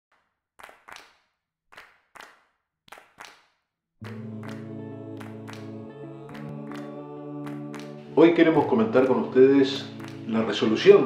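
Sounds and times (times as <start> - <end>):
held music chord: 4.0 - 11.0.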